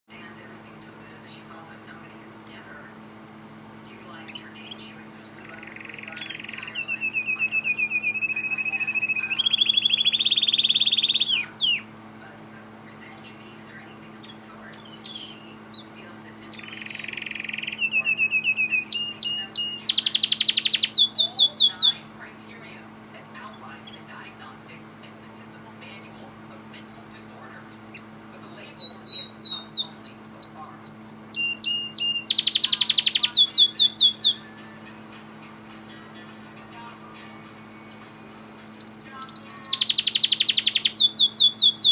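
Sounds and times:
canary singing trills: 0:04.0 - 0:12.0, 0:14.0 - 0:22.8, 0:23.4 - 0:24.4, 0:26.8 - 0:41.9.

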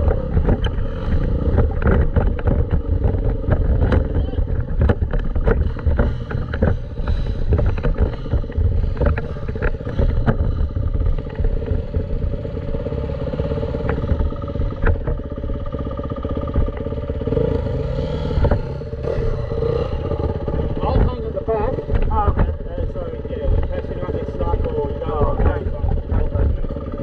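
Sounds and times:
sharp knocks and clatter: 0:00.0 - 0:12.6, 0:13.3 - 0:17.1, 0:18.3 - 0:27.0
dirt bike engine running: 0:00.0 - 0:27.0.

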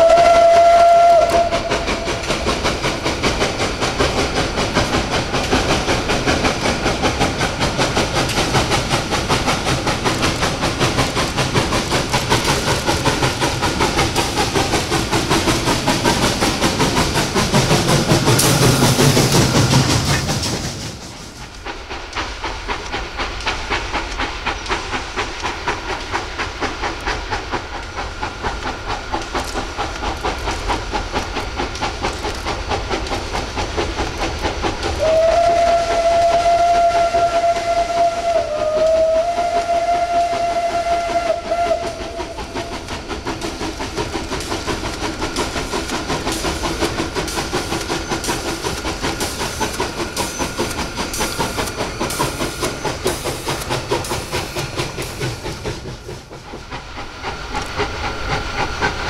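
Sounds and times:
steam whistle blast: 0:00.0 - 0:02.2, 0:35.0 - 0:42.6
steam hiss: 0:00.0 - 0:59.0
steam locomotive exhaust beat: 0:00.0 - 0:59.0.

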